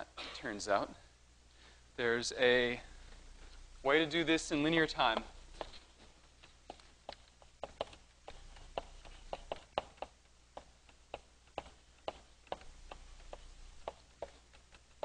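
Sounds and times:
chalk tapping on a blackboard: 6.6 - 15.0.

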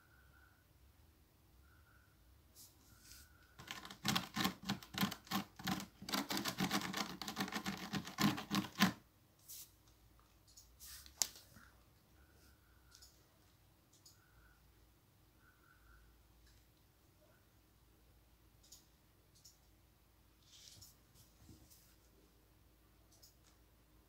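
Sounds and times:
rapid scratching clicks: 3.6 - 9.0.

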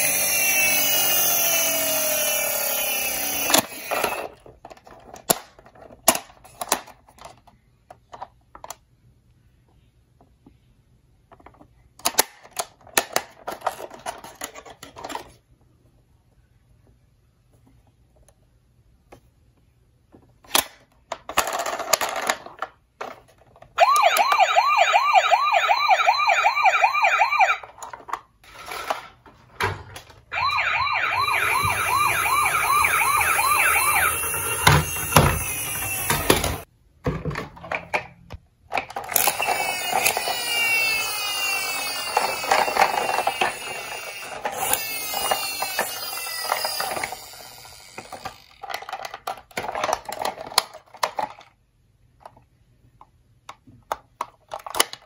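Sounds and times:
toy siren falling sweeps: 0.0 - 4.2, 23.8 - 27.7, 30.3 - 36.7, 39.2 - 48.4
toy rolling down wooden ramp: 0.0 - 6.1, 30.4 - 36.7, 38.8 - 51.4
toy siren warbling: 23.8 - 27.7, 30.3 - 36.7, 39.2 - 48.3.

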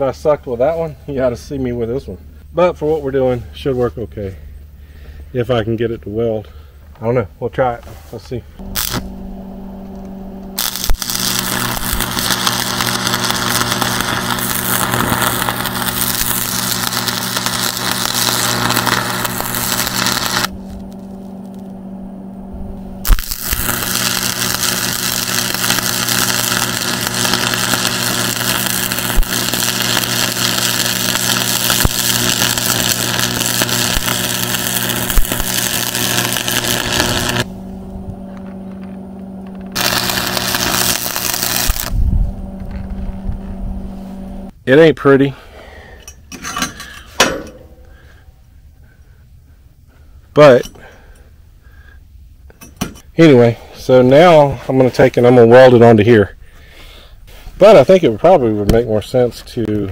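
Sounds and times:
steady low hum: 0.0 - 44.7
welding arc crackling: 8.6 - 44.5.

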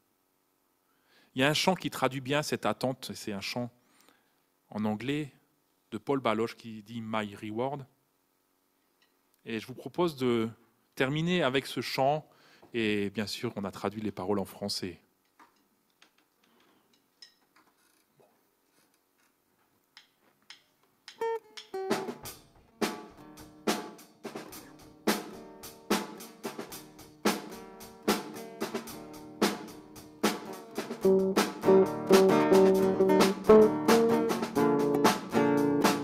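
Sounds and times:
drum kit steady beat: 21.1 - 36.0
acoustic and electric guitars: 31.0 - 36.0.

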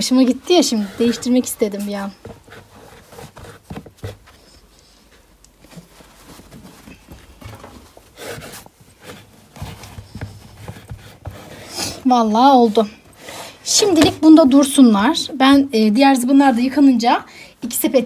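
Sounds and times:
fabric rustling: 0.0 - 17.1
plastic baskets knocking: 13.8 - 15.7.

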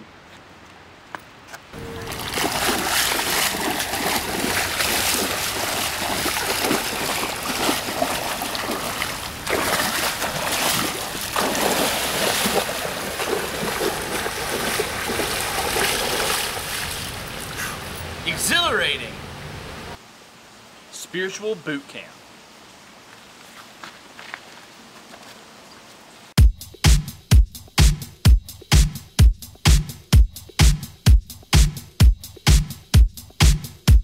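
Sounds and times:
person wading through creek water: 1.8 - 18.1
sharp water splashes: 1.8 - 19.0.

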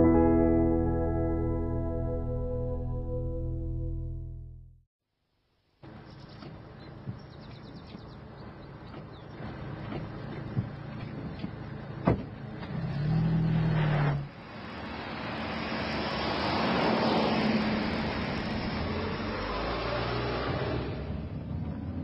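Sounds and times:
car road noise: 5.8 - 22.0.

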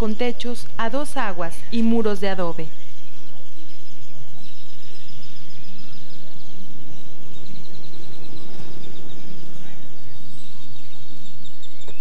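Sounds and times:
murmur of distant voices: 2.6 - 12.0.

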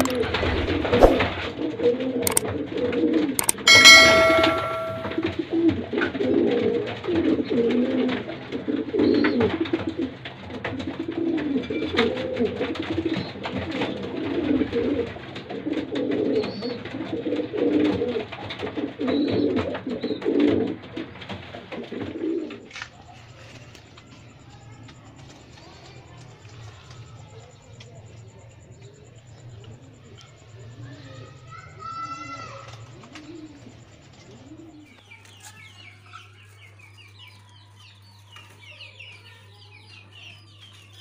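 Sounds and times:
pigeons cooing: 0.0 - 3.4, 6.3 - 22.7, 32.6 - 35.0
bright ringing chime: 3.4 - 5.3.

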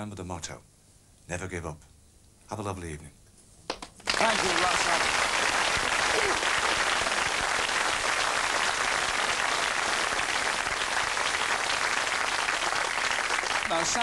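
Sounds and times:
audience applauding: 3.7 - 14.0.

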